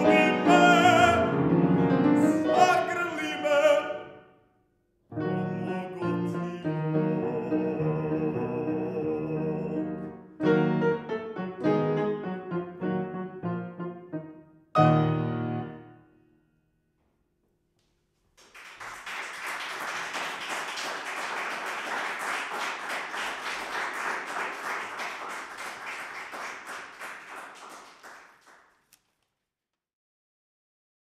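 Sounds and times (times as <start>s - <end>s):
audience applauding: 18.4s - 28.9s.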